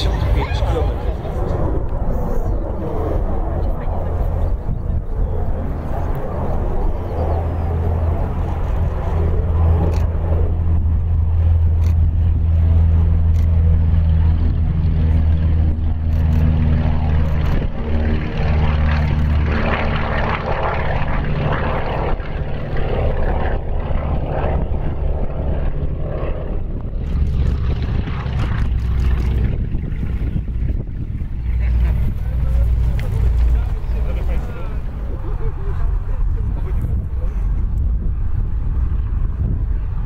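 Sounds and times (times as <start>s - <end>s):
propeller airliner engines drone: 0.0s - 40.0s.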